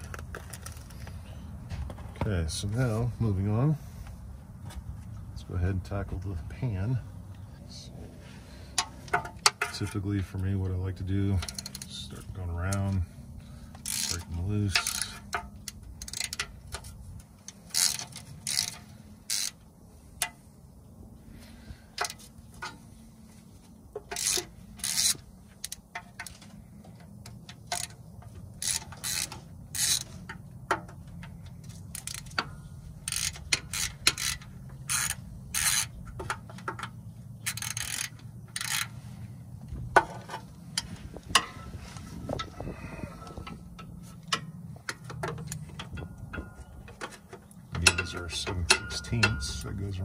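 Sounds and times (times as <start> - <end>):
socket ratchet clicking: 31.2 - 38.9.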